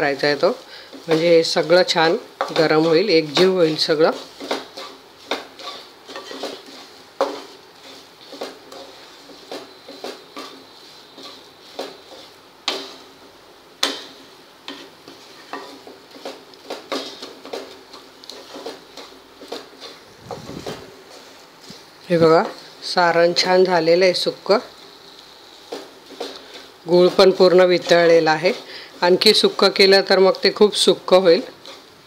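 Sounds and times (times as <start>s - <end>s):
spatula scraping a pan: 0.0s - 32.0s.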